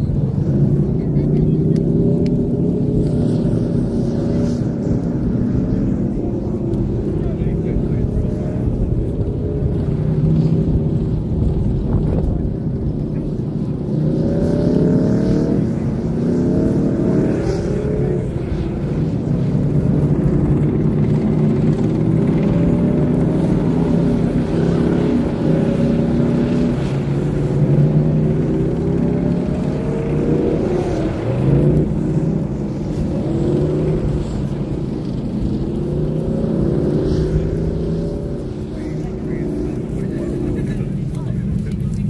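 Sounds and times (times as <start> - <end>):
tank engines running: 0.0 - 42.0.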